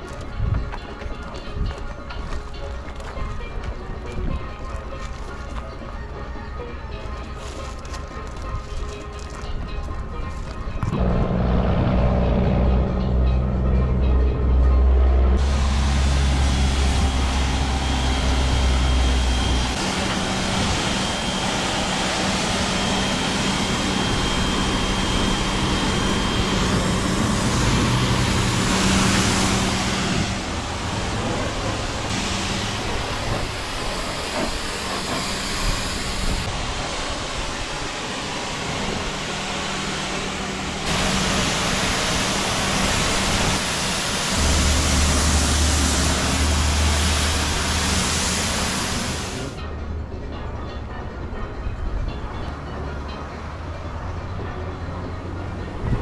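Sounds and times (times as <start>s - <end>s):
pressure washer machine hum: 10.9s - 49.6s
pressure washer spray hissing: 15.4s - 49.6s.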